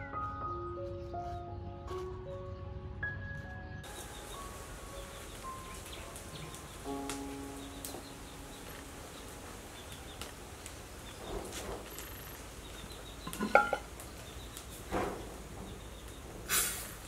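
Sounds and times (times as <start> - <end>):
kitchenware clinking: 13.2 - 13.9.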